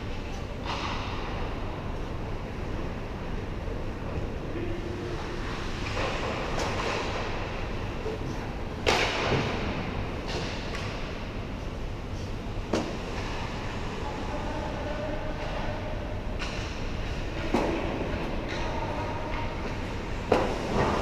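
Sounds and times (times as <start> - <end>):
indoor rink hum: 0.0 - 21.0
hockey puck being hit: 8.8 - 9.7.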